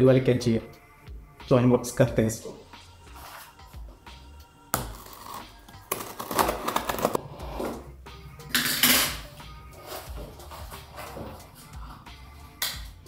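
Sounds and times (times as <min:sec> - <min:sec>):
scissors cutting packaging: 0:04.8 - 0:07.2
packaging crackling and tearing: 0:04.9 - 0:07.2.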